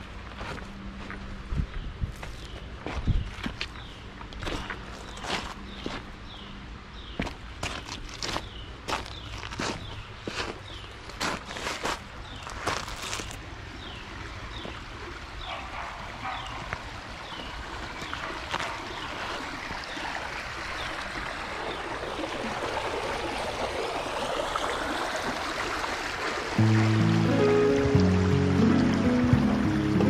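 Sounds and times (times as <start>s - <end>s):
creek water running over rocks: 7.1s - 30.0s.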